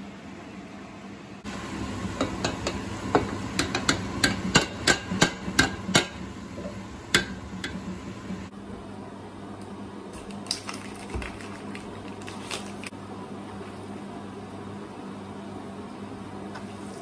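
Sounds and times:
low hum: 1.4 - 8.5
metallic knocks on saucepan: 2.2 - 7.8.

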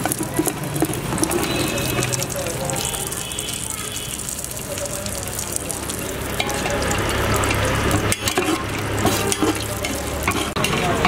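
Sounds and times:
metal spatula scraping a pot: 0.0 - 2.2, 6.3 - 11.0
nuts sizzling in a pot: 0.0 - 11.0.

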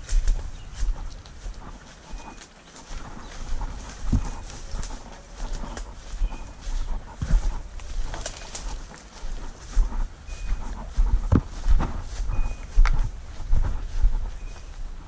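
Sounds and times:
footsteps through dry leaves: 0.0 - 15.0
twigs snapping: 8.0 - 9.1.

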